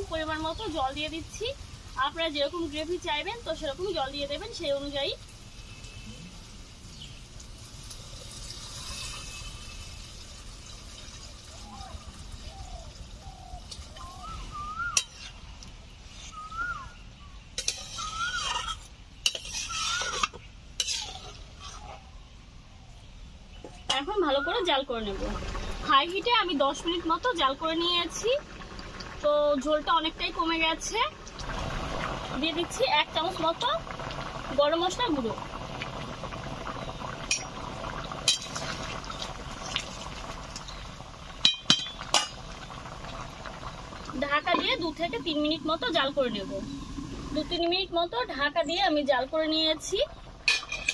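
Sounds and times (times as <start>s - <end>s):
gravy bubbling in a pan: 0.0s - 22.2s, 23.8s - 50.9s
bird calling: 11.6s - 15.5s, 16.1s - 18.9s, 19.6s - 20.5s
spatula scraping cooking pan: 15.0s - 15.5s, 17.6s - 22.0s.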